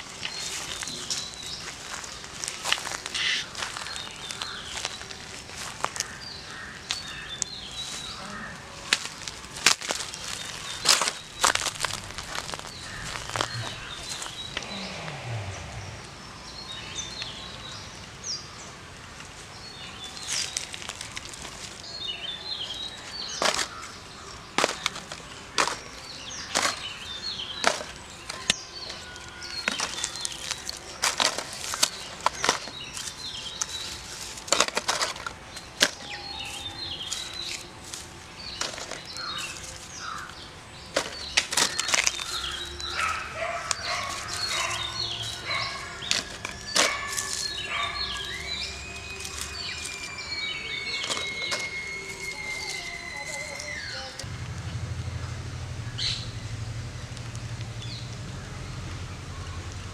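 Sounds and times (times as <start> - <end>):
birds chirping: 0.0 - 59.9
dry leaves crackling and rustling: 0.0 - 59.9.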